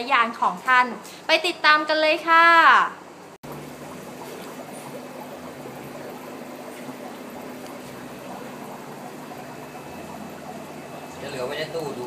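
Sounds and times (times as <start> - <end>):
aeration bubbling and splashing: 2.6 - 12.0.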